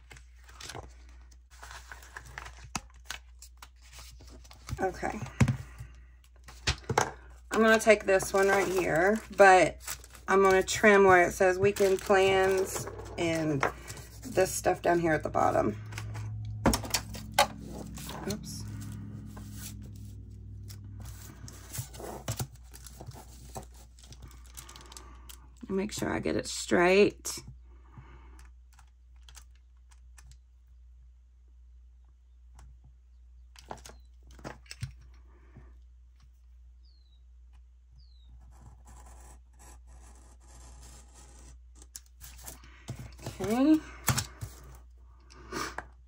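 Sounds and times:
sticker paper rustling: 7.5 - 14.6, 17.0 - 25.0
steady low hum: 11.3 - 22.7.

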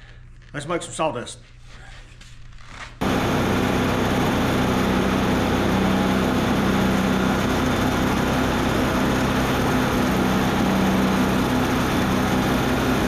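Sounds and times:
band sawmill running: 3.0 - 13.0.

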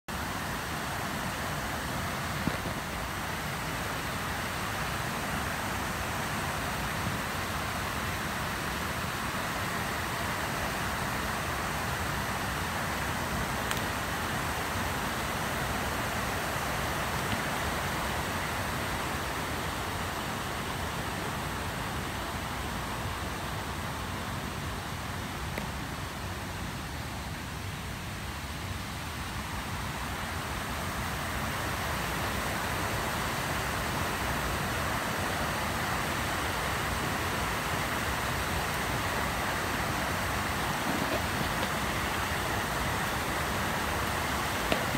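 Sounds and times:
stream rushing over rocks: 0.1 - 44.9.

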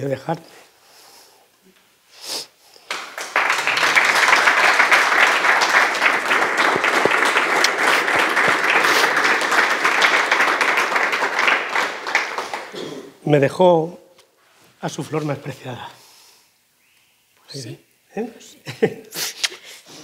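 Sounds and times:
audience applauding: 2.9 - 12.8.

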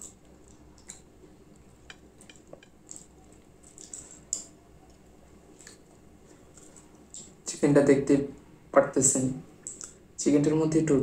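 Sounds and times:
fingers picking food off a plate: 0.0 - 7.4.

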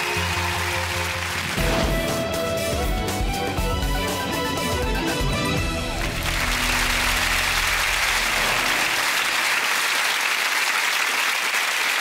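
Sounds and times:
audience applauding: 0.0 - 2.0, 5.8 - 12.0
theme music: 0.0 - 9.6.

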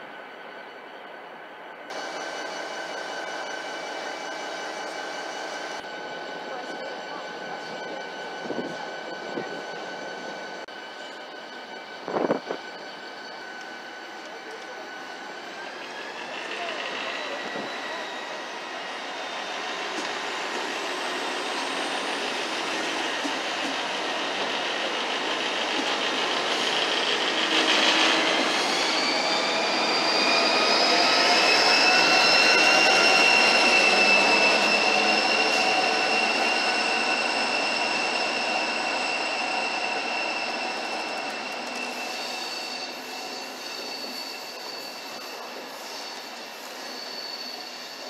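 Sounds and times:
train rumble and hiss: 0.0 - 48.0
faint high whines: 0.1 - 48.0.

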